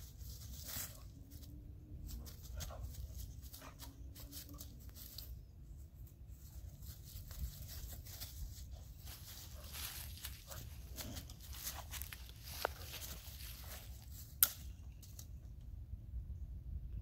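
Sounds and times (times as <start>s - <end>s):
dry leaves crunching under paws: 0.0s - 5.4s, 6.4s - 14.4s.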